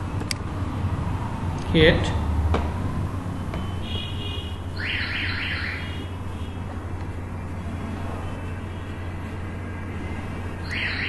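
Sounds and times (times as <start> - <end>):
high chirps: 4.8 - 6.1.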